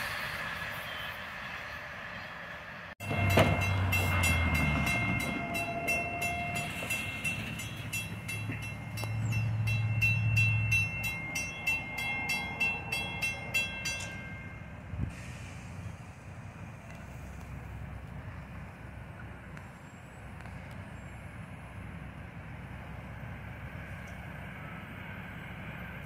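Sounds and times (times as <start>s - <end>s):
road vehicles rumbling past: 0.0s - 26.0s
crossing warning bell ringing: 3.0s - 15.0s.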